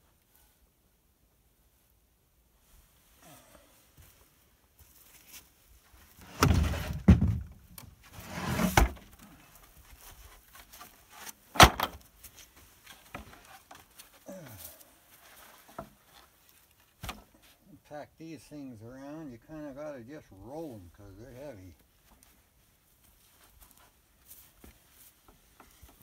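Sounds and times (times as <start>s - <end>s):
wooden pallet scraping: 6.2s - 9.2s
loud wooden thunk: 6.3s - 7.6s, 11.6s - 12.0s.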